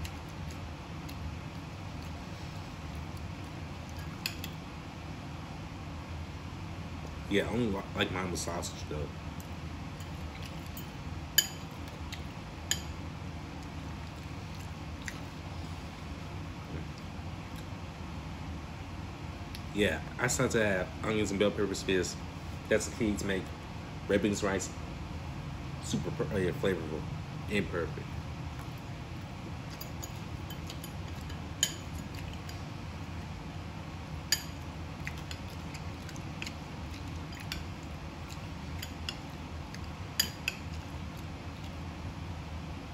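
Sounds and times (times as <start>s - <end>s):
steady low hum: 0.0s - 42.9s
metal spoon clinking ceramic bowl: 10.8s - 11.7s, 40.2s - 40.6s.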